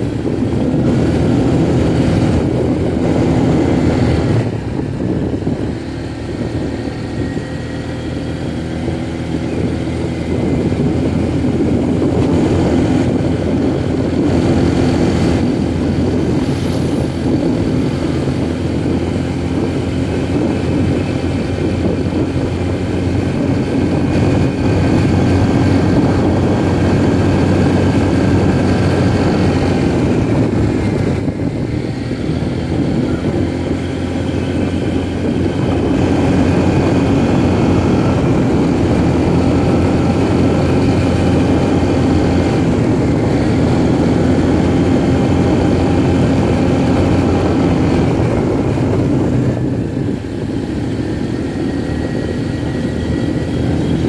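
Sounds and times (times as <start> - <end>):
small motorcycle engine running: 0.0 - 54.0.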